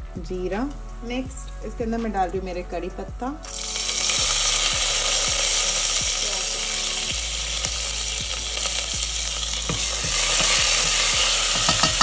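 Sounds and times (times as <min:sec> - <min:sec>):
seeds sizzling in hot oil: 0:03.4 - 0:12.0.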